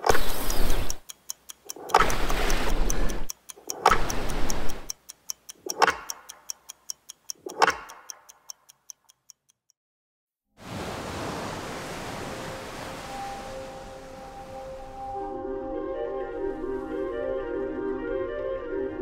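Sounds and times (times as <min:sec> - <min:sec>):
fast clock-like ticking: 0:00.0 - 0:09.8.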